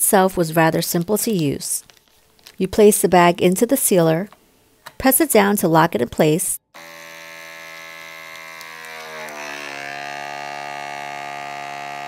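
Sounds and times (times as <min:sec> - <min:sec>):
vacuum sealer pump humming: 0:06.8 - 0:12.0.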